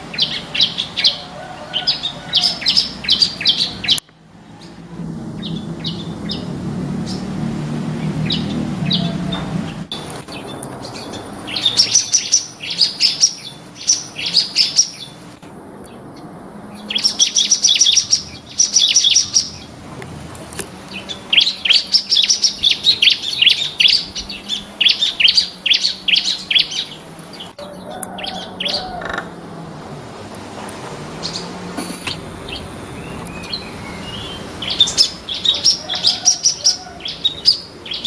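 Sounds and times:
bird chirping high notes: 31.2 - 38.0.

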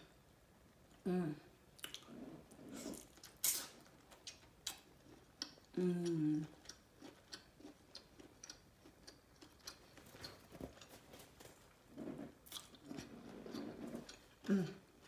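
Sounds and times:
wet mouth chewing: 1.8 - 11.3, 12.0 - 14.6.

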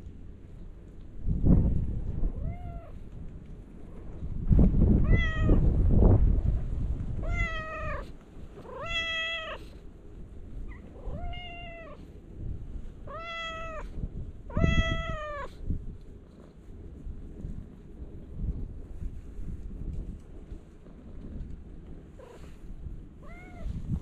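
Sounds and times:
low rumbling microphone noise: 0.0 - 24.0
cat meowing: 2.4 - 3.0, 5.0 - 5.7, 7.2 - 9.8, 10.7 - 12.0, 13.0 - 15.6, 23.2 - 23.8.

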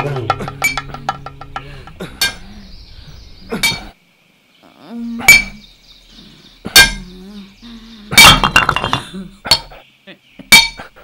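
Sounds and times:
hammer striking stone: 0.0 - 2.4.

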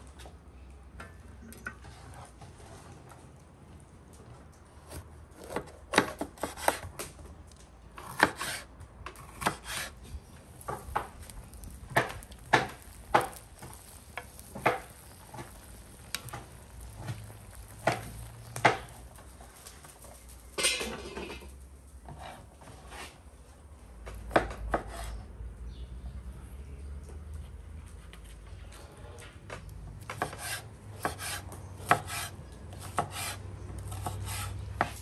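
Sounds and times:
knife cutting on wooden board: 4.9 - 6.9, 8.0 - 10.0, 30.1 - 35.0
meat sizzling: 10.2 - 20.6
spatula knocking and scraping pan: 11.8 - 19.1.

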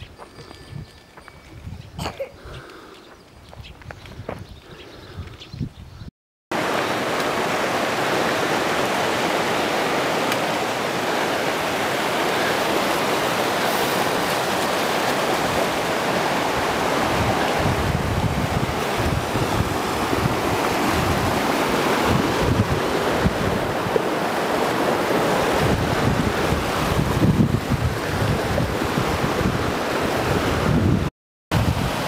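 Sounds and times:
wind buffeting microphone: 0.0 - 6.1, 10.7 - 32.0
stream rushing over rocks: 6.5 - 32.0.

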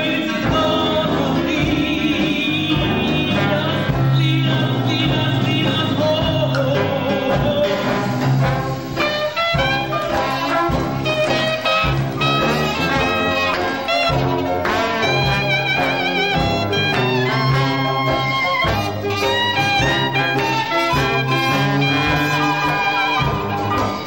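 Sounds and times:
song with singing over band: 0.0 - 24.0
upbeat music with steady beat: 0.0 - 24.0.

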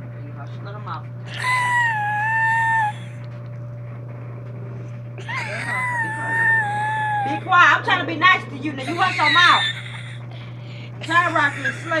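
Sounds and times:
small dog whining: 1.3 - 3.2, 5.2 - 7.5, 8.8 - 10.2.

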